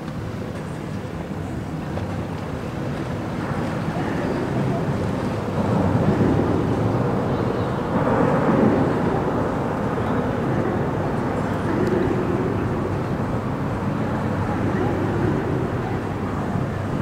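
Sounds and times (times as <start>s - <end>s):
motorboat engine: 0.0s - 17.0s
traffic rumbling over bridge: 4.3s - 17.0s.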